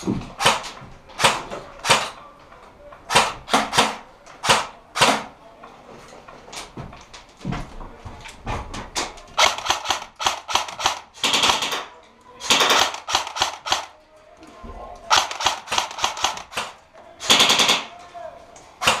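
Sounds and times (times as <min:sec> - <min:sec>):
airsoft guns firing: 0:00.3 - 0:02.2, 0:03.1 - 0:05.4, 0:09.4 - 0:14.0, 0:15.1 - 0:17.9, 0:18.8 - 0:19.0.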